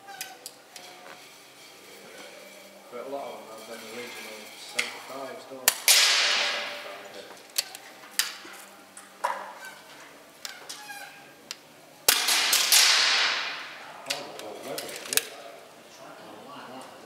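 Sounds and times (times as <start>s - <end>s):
air rifle shots with echo: 5.7s - 6.8s, 12.1s - 13.8s.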